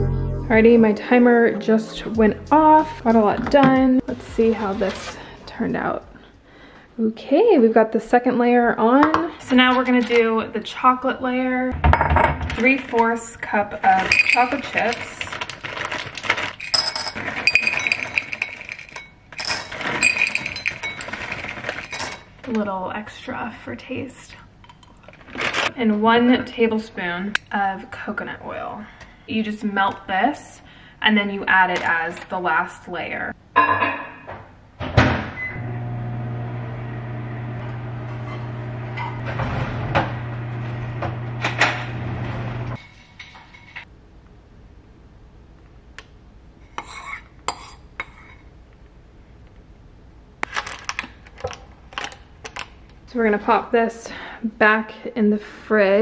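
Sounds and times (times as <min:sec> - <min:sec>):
chocolate chips pouring into metal cup: 0:13.8 - 0:22.2
foil bag crinkling: 0:13.8 - 0:22.2, 0:25.0 - 0:25.8, 0:50.4 - 0:52.8
microwave humming: 0:34.9 - 0:42.8
microwave beeping: 0:35.2 - 0:42.8.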